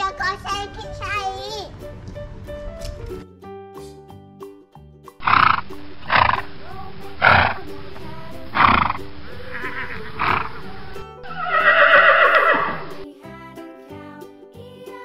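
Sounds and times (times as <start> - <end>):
background music: 0.0 - 15.0
horse whinny: 8.6 - 13.0.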